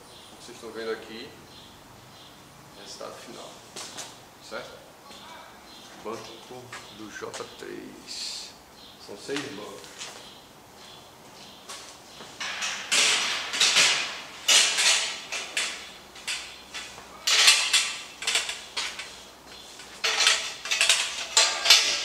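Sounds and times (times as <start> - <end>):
steel tubes clanking and rattling: 12.4 - 22.0.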